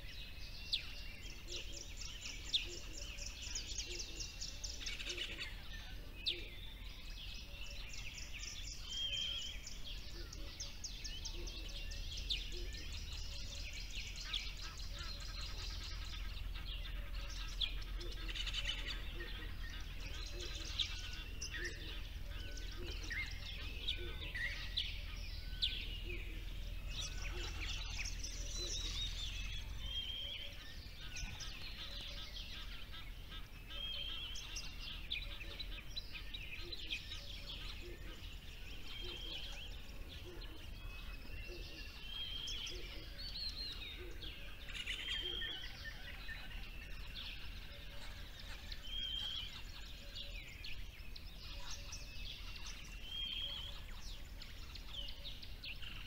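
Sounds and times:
songbirds singing and chirping: 0.0s - 56.0s.

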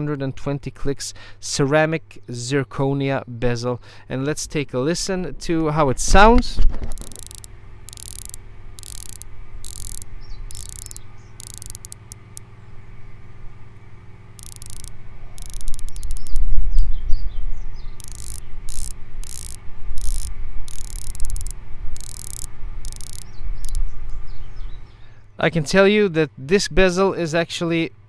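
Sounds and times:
watch bezel ratcheting clicks: 6.9s - 12.5s, 14.4s - 16.5s, 18.0s - 23.8s.

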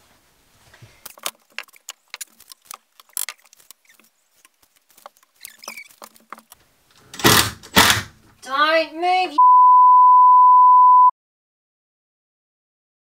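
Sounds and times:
tools and timber clicking and knocking: 0.8s - 8.4s.

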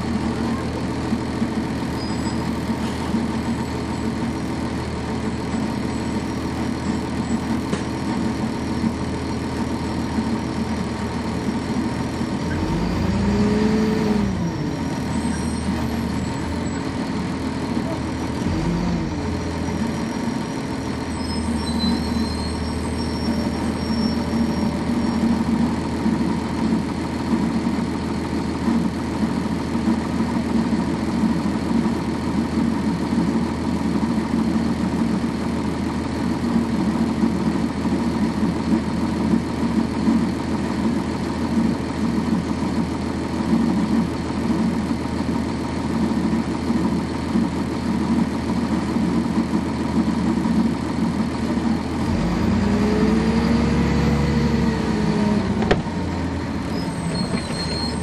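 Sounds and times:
bus diesel engine droning: 0.0s - 58.0s.

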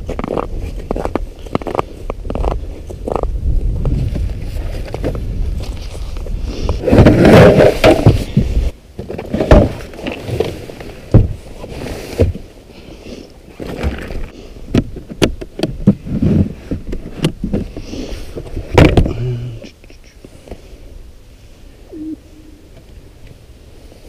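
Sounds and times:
knocks and thumps of gear: 6.9s - 10.5s, 11.1s - 11.4s, 18.4s - 19.2s.

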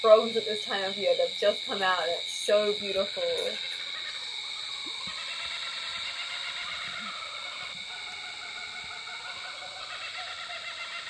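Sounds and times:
frogs calling in chorus: 0.0s - 11.0s.

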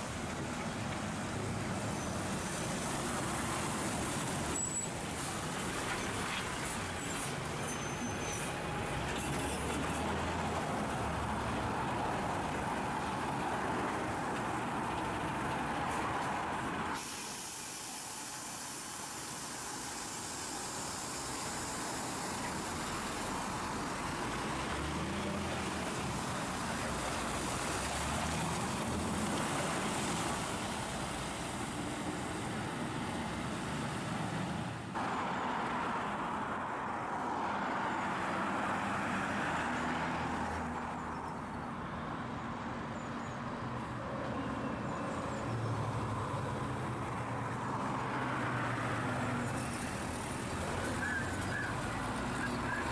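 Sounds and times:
heavy lorry diesel engine: 0.0s - 52.9s
tyre and road noise: 0.0s - 52.9s.

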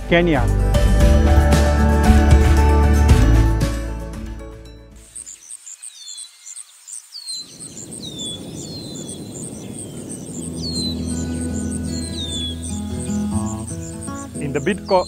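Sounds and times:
background music: 0.0s - 5.1s, 10.7s - 15.0s
bird chirping: 5.0s - 15.0s
insect calling high pulsing: 5.0s - 15.0s.

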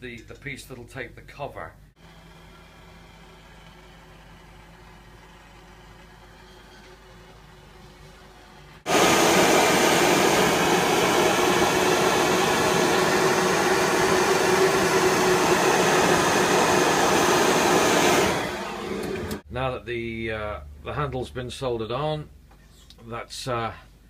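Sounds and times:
gas torch hissing: 8.9s - 19.4s.

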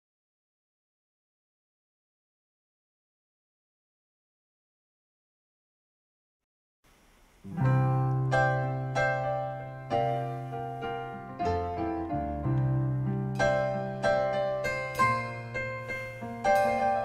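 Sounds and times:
piano chords: 7.4s - 17.0s.

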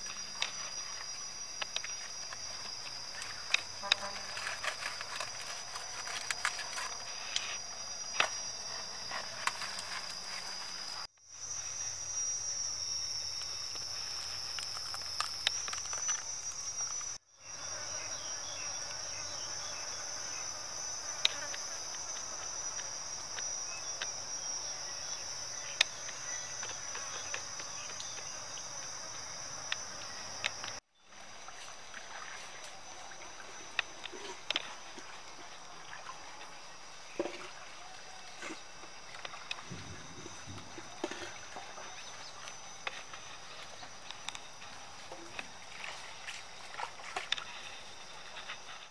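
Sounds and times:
small clicks and rustles: 1.6s - 7.6s, 13.7s - 17.2s.

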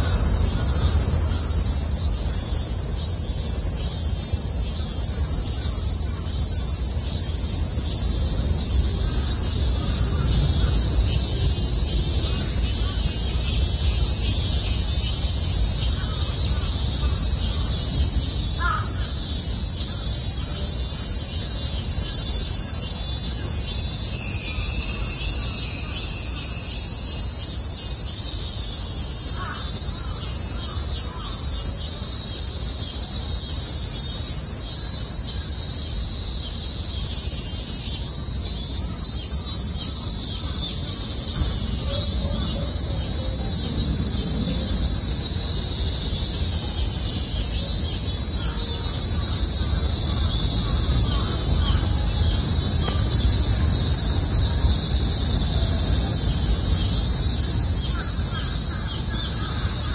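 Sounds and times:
cicadas droning: 0.0s - 59.9s
pulsing insect call: 0.0s - 59.9s
crow cawing: 18.4s - 19.4s, 29.4s - 29.8s.

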